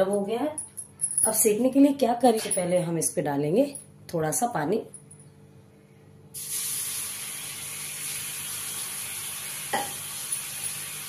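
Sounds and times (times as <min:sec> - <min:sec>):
water sizzling on hot griddle: 0:06.4 - 0:11.0.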